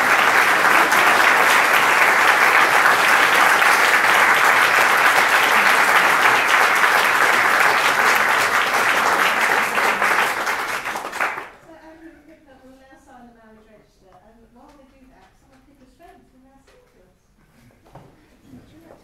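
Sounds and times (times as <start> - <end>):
audience clapping: 0.0 - 11.6.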